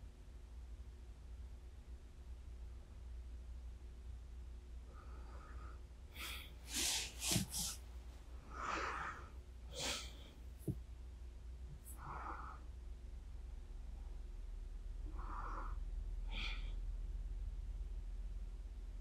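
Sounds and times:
person breathing softly: 4.8 - 10.7, 11.8 - 12.8, 15.0 - 16.9
sniffs: 6.2 - 7.9, 8.5 - 10.3.

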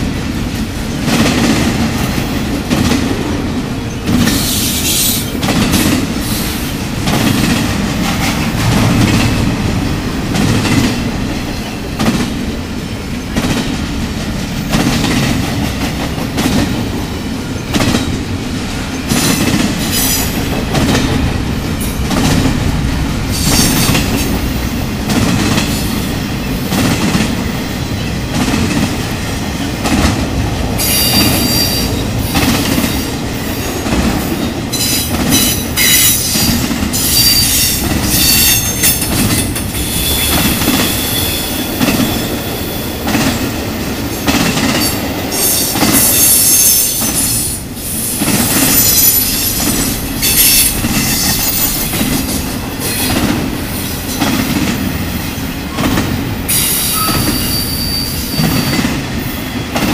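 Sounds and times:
rail clacks: 0.0 - 59.9
train wheels rumbling on rails: 0.0 - 59.9
high-pitched wheel squeal: 56.6 - 58.8.

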